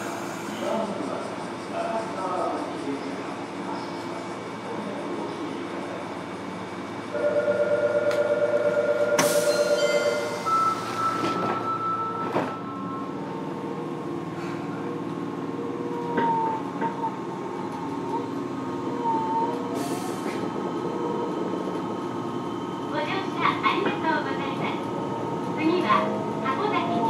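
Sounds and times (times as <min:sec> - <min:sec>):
pulsing door-closing warning tone: 0:09.1 - 0:13.2
train doors shutting with a knock: 0:09.2 - 0:12.7.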